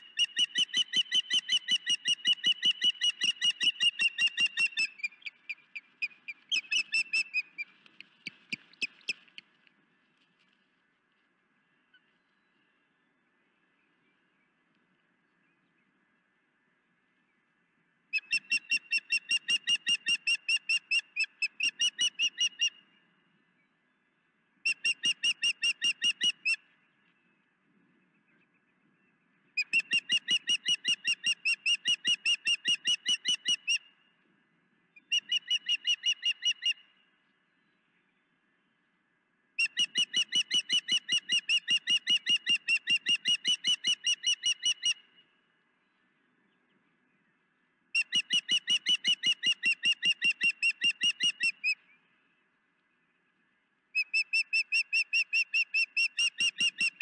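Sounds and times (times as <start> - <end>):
bird calling in high chirps: 0.0 - 9.5, 35.0 - 36.9, 39.6 - 45.3, 48.0 - 52.0, 54.0 - 57.0.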